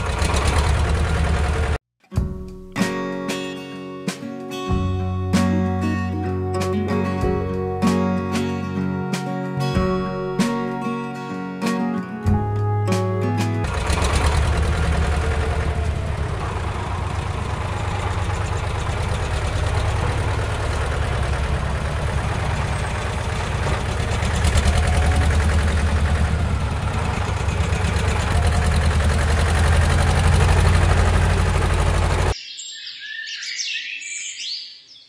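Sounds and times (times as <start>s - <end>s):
engine chugging: 0.0s - 1.8s, 12.3s - 32.4s
birds chirping: 32.3s - 35.0s.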